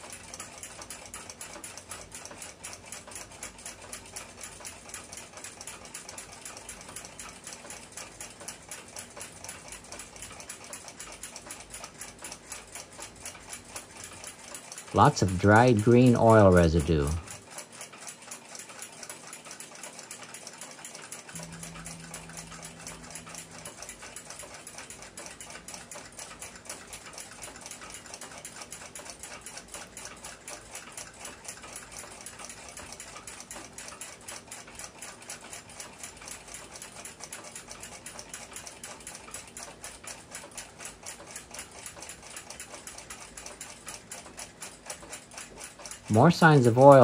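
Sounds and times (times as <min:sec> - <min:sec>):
clock ticking rapidly: 0:00.0 - 0:47.0
short low hum: 0:21.4 - 0:25.6.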